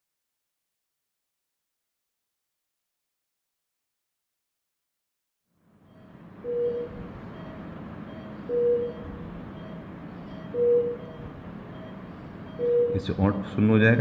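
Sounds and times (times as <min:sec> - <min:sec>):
room noise: 0:05.6 - 0:14.0
loud single-pitched beep: 0:05.9 - 0:13.2.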